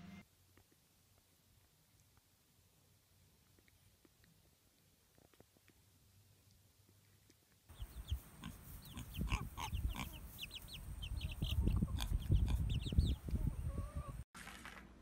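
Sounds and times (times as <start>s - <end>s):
chicks peeping: 7.7s - 14.2s.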